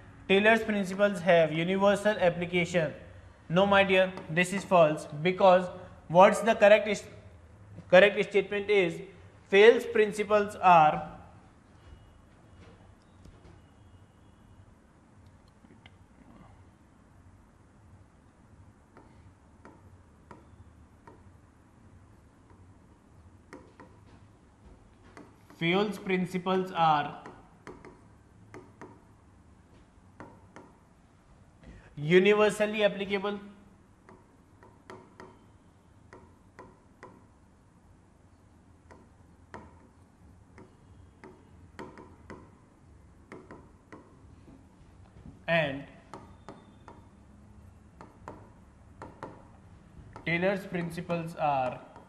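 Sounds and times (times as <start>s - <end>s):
low steady hum: 0.0s - 52.0s
stylus tapping on touchscreen: 23.5s - 24.2s, 27.2s - 29.0s, 29.7s - 30.8s, 38.9s - 39.9s, 40.6s - 42.6s, 43.3s - 44.2s, 46.1s - 47.1s, 48.0s - 50.3s
stylus tapping on glass: 40.6s - 42.5s, 46.1s - 47.1s, 48.0s - 49.5s.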